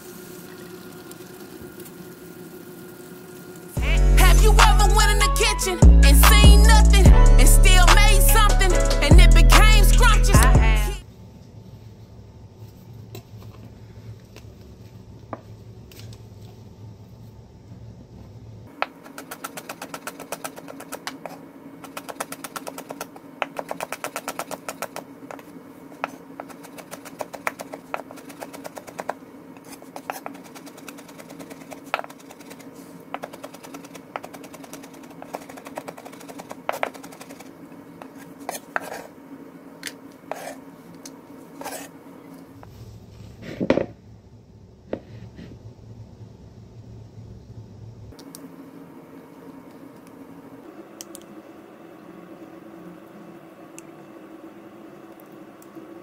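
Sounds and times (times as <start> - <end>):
knife chopping on cutting board: 18.8 - 25.0.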